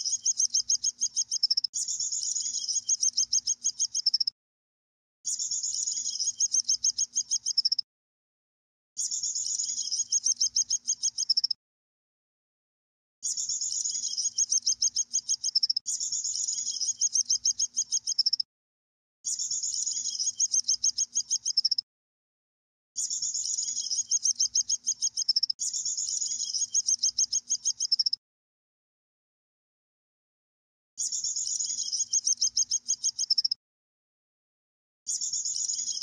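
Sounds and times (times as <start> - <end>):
electronic bird chirps: 0.0 - 4.3, 5.3 - 7.8, 9.0 - 11.6, 13.2 - 18.5, 19.3 - 21.8, 23.0 - 28.2, 31.0 - 33.6, 35.1 - 36.0.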